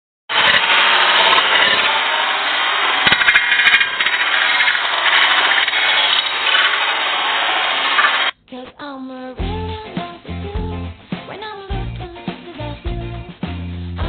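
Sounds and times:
chicken sizzling in a wok: 0:00.3 - 0:08.3
sharp clacks: 0:02.8 - 0:08.3.

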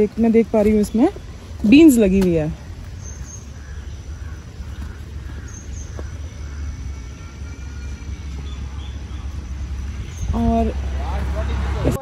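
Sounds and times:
steady low rumble: 0:00.0 - 0:12.0
faint high whine: 0:04.9 - 0:12.0.

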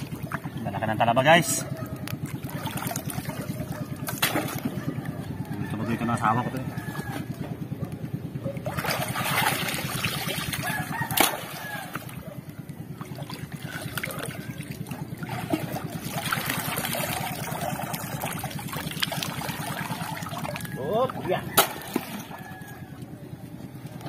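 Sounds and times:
seawater splashing and sloshing: 0:00.0 - 0:05.8, 0:06.6 - 0:23.0
steady low rumble: 0:00.0 - 0:24.0
rooster crowing: 0:04.8 - 0:07.7, 0:10.5 - 0:12.4, 0:19.4 - 0:23.3.

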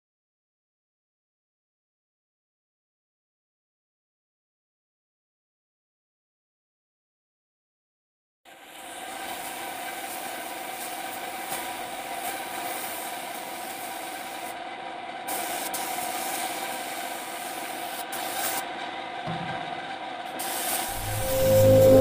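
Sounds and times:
machine humming and hissing: 0:08.5 - 0:22.0.

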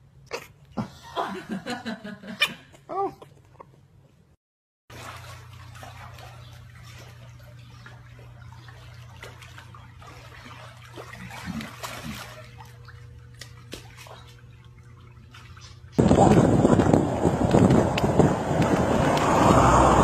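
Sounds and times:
steady low hum: 0:04.9 - 0:20.0
water splashing and lapping: 0:04.9 - 0:20.0.

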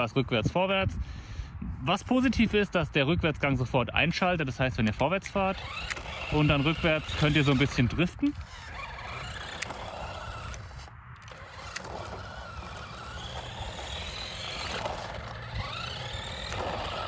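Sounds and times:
toy car electric motor whining: 0:04.8 - 0:17.0.

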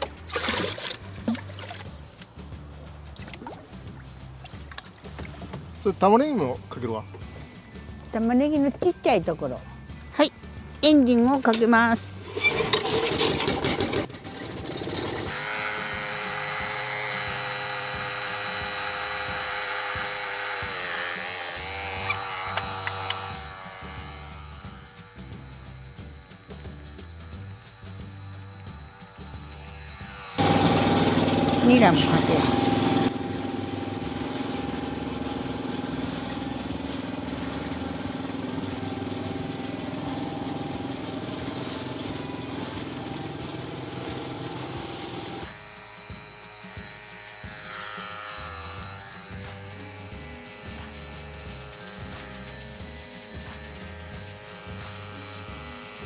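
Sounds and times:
small petrol engine running: 0:12.2 - 0:45.8.

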